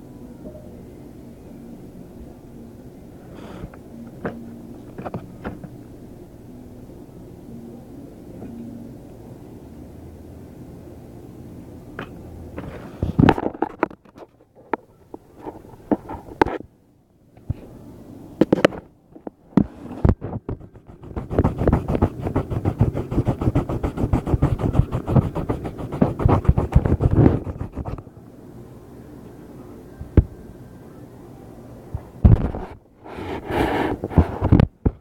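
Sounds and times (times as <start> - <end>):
rapid rubbing and clicking: 20.0 - 28.0.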